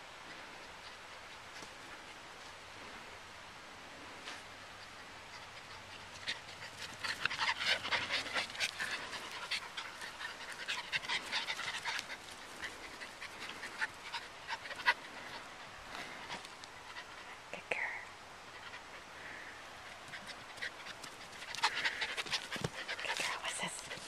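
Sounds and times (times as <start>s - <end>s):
puppies panting: 4.7s - 17.5s, 18.4s - 24.0s.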